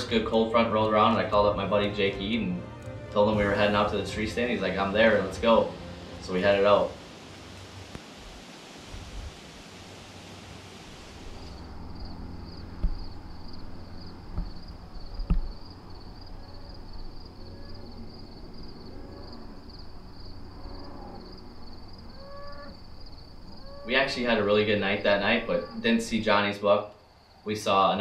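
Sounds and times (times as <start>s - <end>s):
even hiss: 3.2s - 14.9s, 21.2s - 28.0s
insects chirping: 4.7s - 28.0s
distant bird calls: 7.0s - 27.5s
dull thumps: 12.6s - 13.6s, 14.3s - 15.9s.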